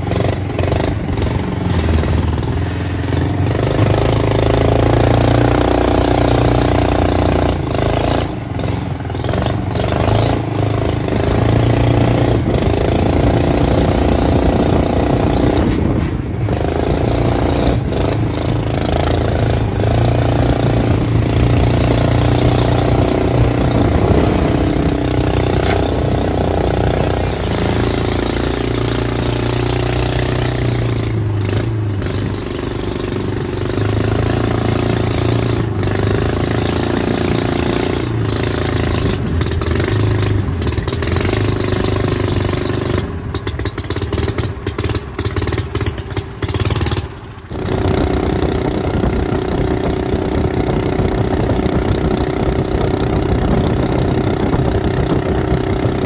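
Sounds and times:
boat motor running: 18.0 - 41.1, 46.5 - 56.0.

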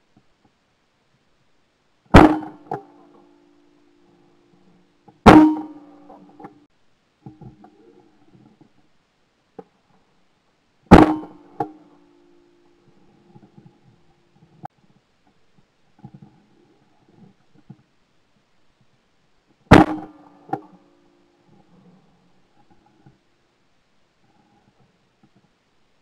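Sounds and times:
ringing hum: 2.1 - 6.6, 10.9 - 14.7
shotgun shots: 2.2 - 2.8.

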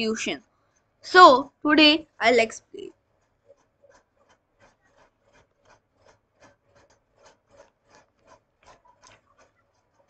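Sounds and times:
faint scratching strokes: 2.1 - 10.0.

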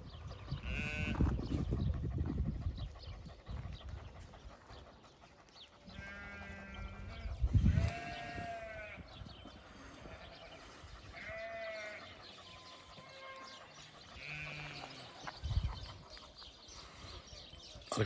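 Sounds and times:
sheep bleating: 0.6 - 1.2, 5.9 - 9.1, 11.2 - 12.2, 14.2 - 15.2.

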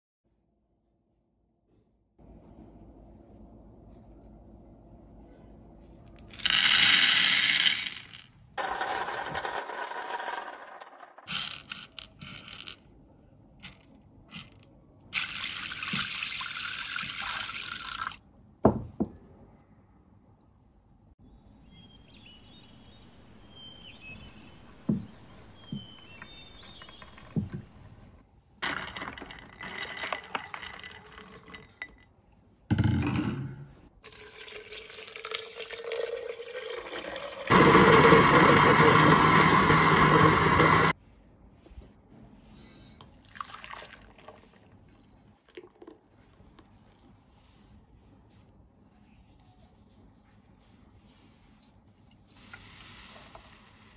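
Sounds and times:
dried beans dropping into tray: 6.2 - 10.4, 11.3 - 12.8
water pouring: 15.2 - 18.2, 34.0 - 37.6, 43.2 - 44.8.

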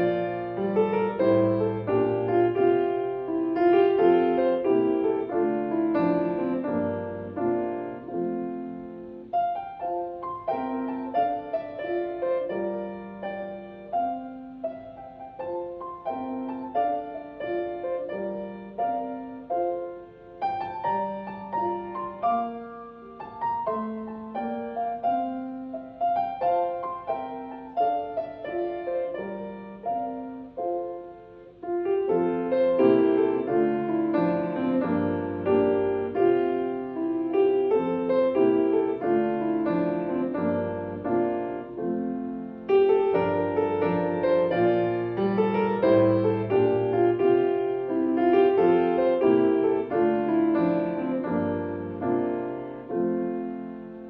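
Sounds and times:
solo piano playing hymn tune: 0.0 - 54.0.

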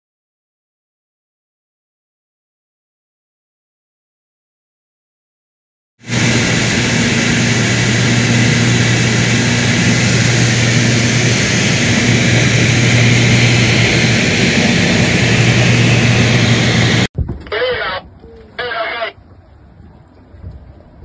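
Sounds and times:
propeller aircraft engine drone: 6.0 - 21.0.

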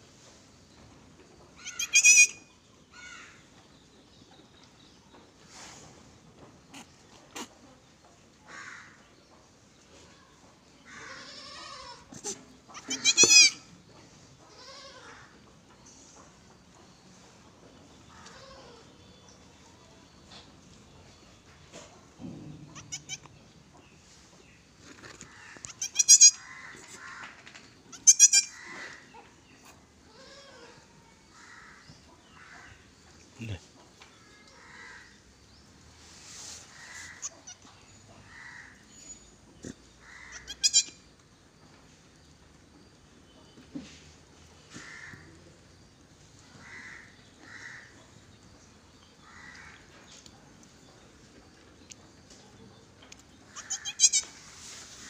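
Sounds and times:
low background noise: 0.0 - 55.0
goat kid bleating: 1.6 - 2.5, 11.0 - 13.7, 14.5 - 15.3, 18.2 - 18.9, 22.7 - 23.4, 25.6 - 26.5, 27.9 - 28.6, 30.1 - 30.9, 40.2 - 41.0, 53.5 - 54.4.

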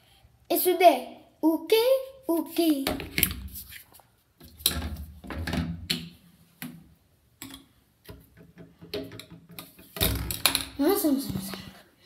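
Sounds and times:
plastic toiletries clicking and knocking: 7.4 - 10.7.

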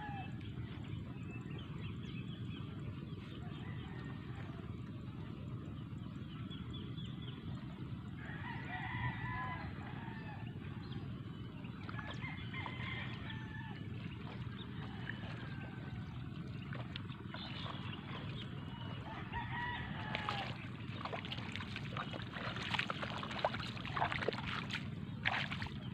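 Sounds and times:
low background rumble: 0.0 - 25.9
roosters crowing: 8.2 - 10.6, 12.0 - 14.0, 14.6 - 16.1, 18.6 - 20.8.

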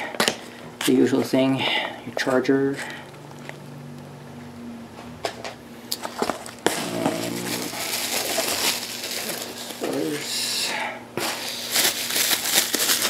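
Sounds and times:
plastic wrap crinkling: 5.9 - 10.3, 11.2 - 13.0.

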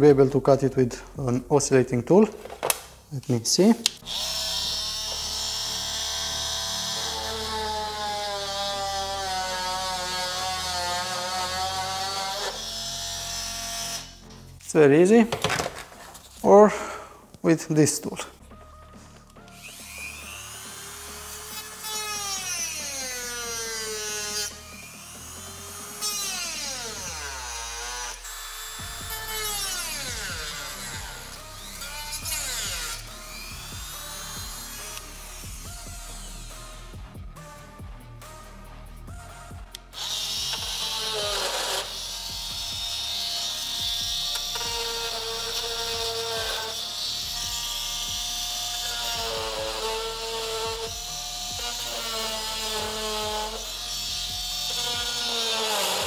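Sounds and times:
rotary tool cutting plastic: 3.8 - 14.2, 40.0 - 56.0.

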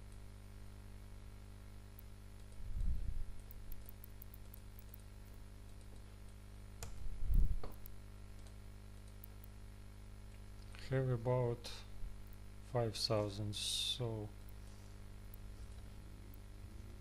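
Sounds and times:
low electrical hum: 0.0 - 17.0
keyboard and mouse clicks: 2.0 - 6.1, 6.8 - 9.6.

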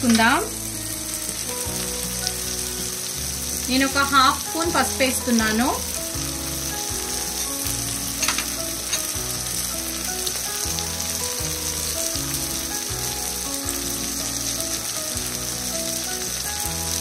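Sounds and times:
food sizzling in oil: 0.0 - 17.0.

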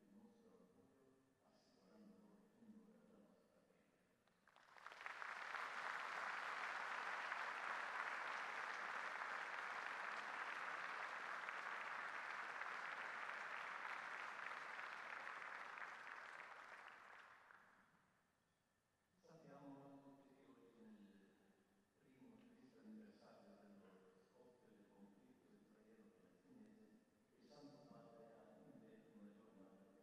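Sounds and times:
audience applauding: 4.5 - 17.6.

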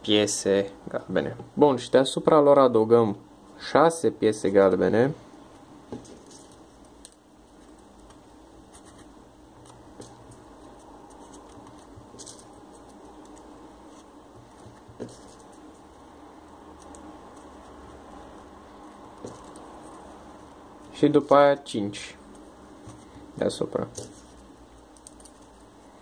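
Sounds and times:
paper rustling and scratching: 7.6 - 16.1, 16.7 - 21.0.

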